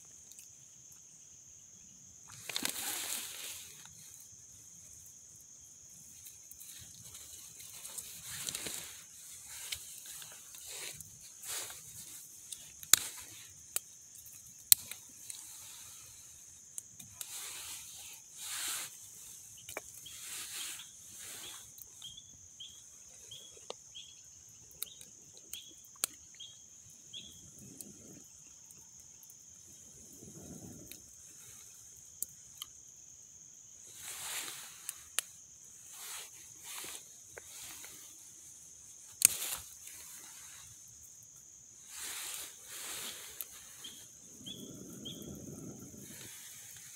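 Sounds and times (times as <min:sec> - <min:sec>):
wood fire crackling and popping: 0:02.2 - 0:15.6, 0:43.3 - 0:46.9
person blowing on embers: 0:02.3 - 0:23.5, 0:33.8 - 0:46.9.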